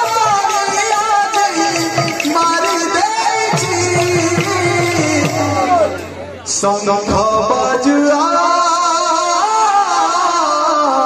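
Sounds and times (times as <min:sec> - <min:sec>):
barrel drums beating: 0:00.0 - 0:06.4.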